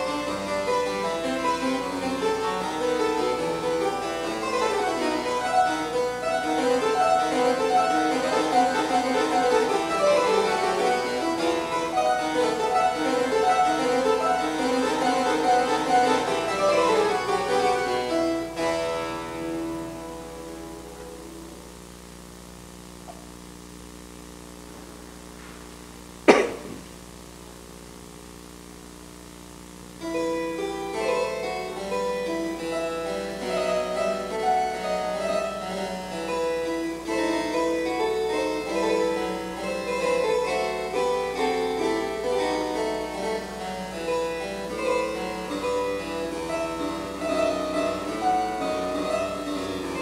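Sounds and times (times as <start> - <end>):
harpsichord music: 0.0 - 21.8, 30.0 - 50.0
sharp click: 26.3 - 26.8.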